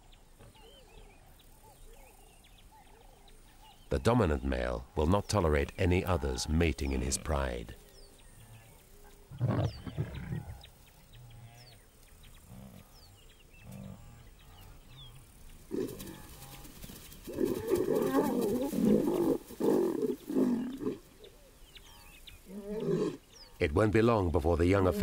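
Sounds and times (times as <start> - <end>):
lions snarling and growling: 8.5 - 10.7, 17.3 - 21.1, 22.0 - 23.3.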